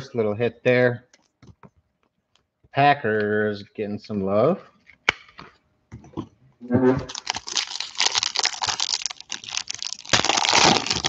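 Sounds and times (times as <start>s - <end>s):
foil wrapper crinkling: 7.1s - 11.0s.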